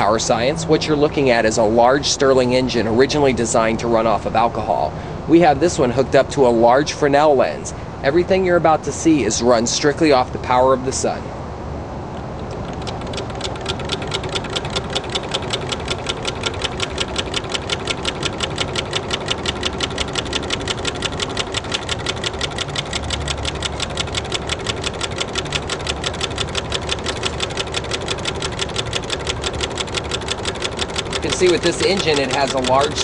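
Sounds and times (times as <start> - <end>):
engine mechanical ticking: 0.0 - 5.1, 12.1 - 33.0.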